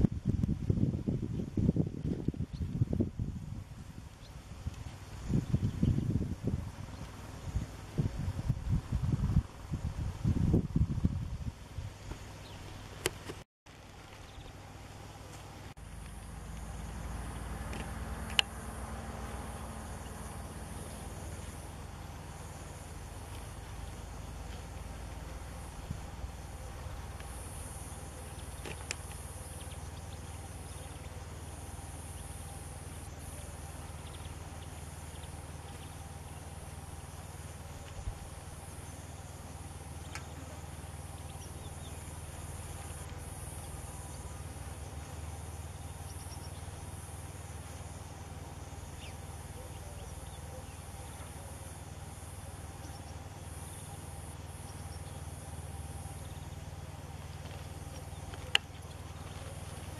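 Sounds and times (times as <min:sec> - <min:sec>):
low even rumble: 0:00.0 - 0:13.0, 0:13.7 - 0:59.9
high-pitched insect chorus: 0:15.8 - 0:59.9
faint clicks: 0:57.4 - 0:59.4.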